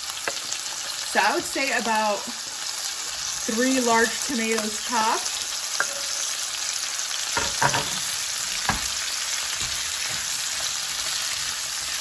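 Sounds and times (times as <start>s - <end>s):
food sizzling in oil: 0.0s - 12.0s
spatula knocking on pan: 7.4s - 9.0s.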